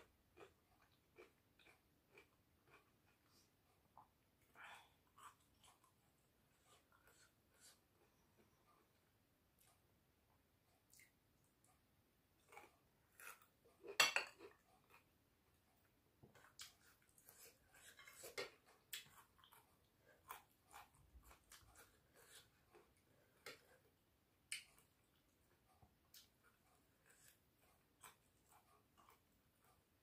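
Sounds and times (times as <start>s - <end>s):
person chewing: 0.0s - 9.9s, 10.7s - 30.0s.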